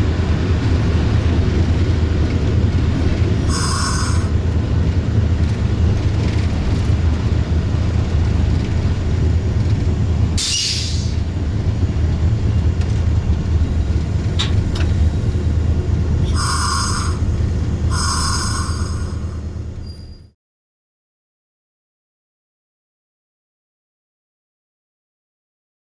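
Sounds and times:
diesel locomotive engine drone: 0.0 - 20.4
rail noise: 0.0 - 20.4
train horn blasts: 3.5 - 4.4, 16.2 - 17.3, 17.9 - 19.4.

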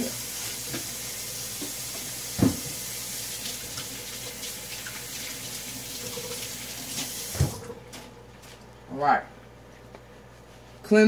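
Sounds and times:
tap water running: 0.0 - 8.4.

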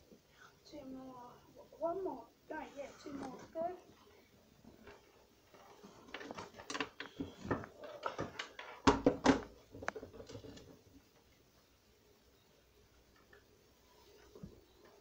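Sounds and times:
objects handled clicking and knocking: 4.7 - 11.2.

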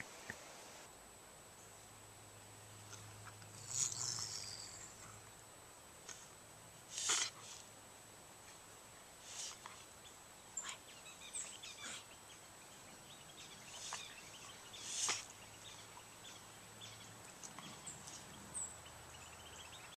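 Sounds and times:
faint bird chirps: 9.2 - 20.0.

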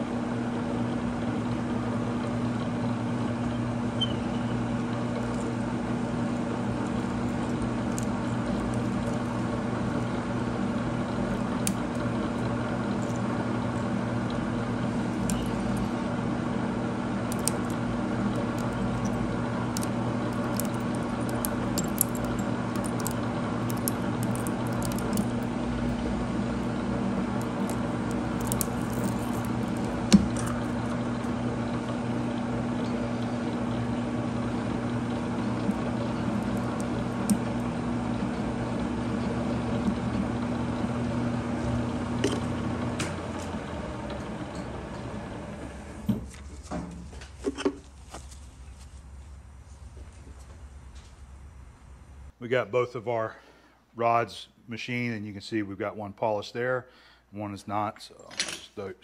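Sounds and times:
milling machine spindle running: 4.3 - 46.1.

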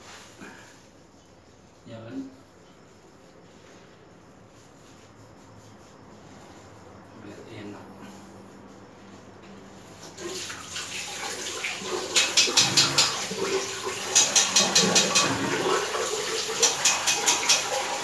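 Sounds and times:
water running into basin: 10.1 - 18.0.

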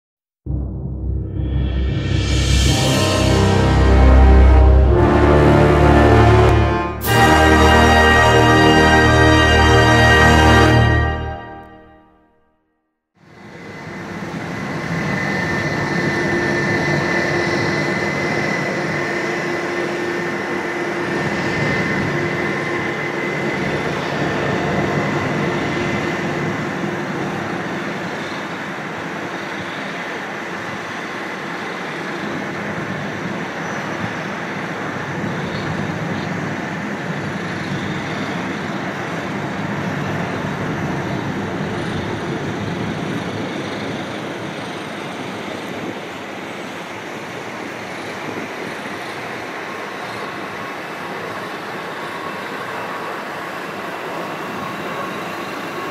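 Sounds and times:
distant jet engines rumbling: 13.4 - 30.7.

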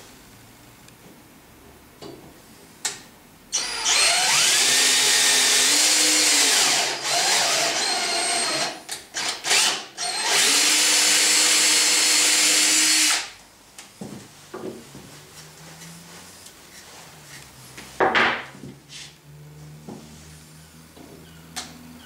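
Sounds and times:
cordless drill motor whining: 3.6 - 13.3.

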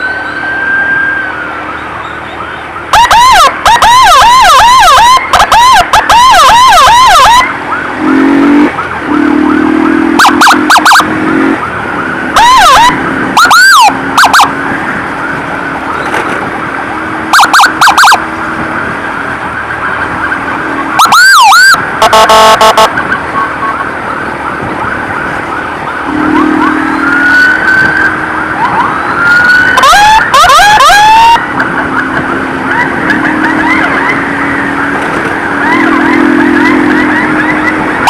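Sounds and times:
ambulance siren wailing: 0.0 - 38.0
motorcycle siren yelping: 0.0 - 38.0
low horn-like buzz: 8.0 - 11.6.

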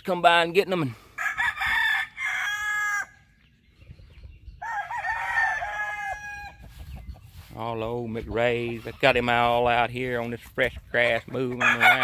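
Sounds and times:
roosters crowing: 1.0 - 3.3, 4.5 - 7.0, 11.4 - 12.0.

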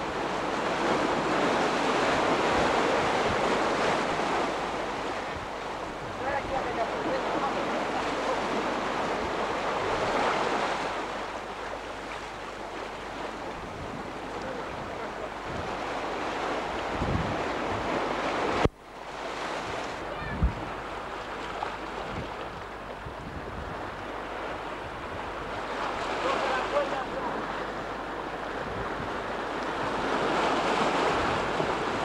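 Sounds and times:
sea waves breaking over rocks: 0.0 - 32.0
wind buffeting microphone: 12.0 - 32.0.

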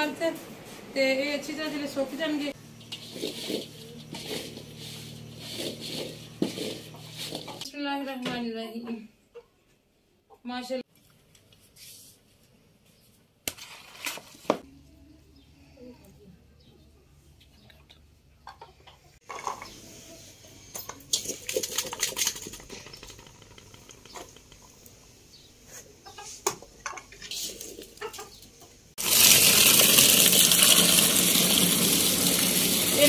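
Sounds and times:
tap water gushing into bowl: 29.0 - 33.0.

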